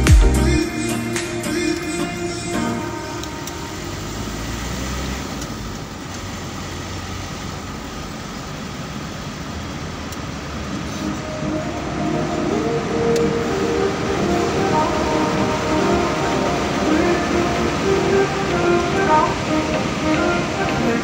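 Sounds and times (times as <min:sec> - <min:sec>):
vehicle engine and tyres: 0:01.8 - 0:21.0
faint music: 0:10.5 - 0:21.0.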